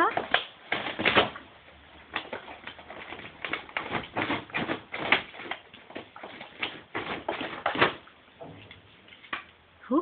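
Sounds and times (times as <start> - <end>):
plastic bag crinkling: 0.0 - 8.2
dog tearing cardboard box: 0.1 - 8.0.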